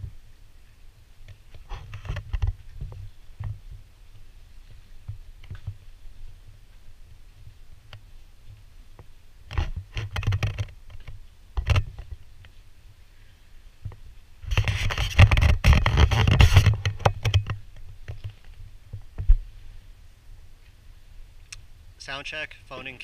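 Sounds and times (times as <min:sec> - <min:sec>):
camera rubbing and scraping in case: 0:01.4 - 0:03.7, 0:09.5 - 0:12.2, 0:14.4 - 0:19.4.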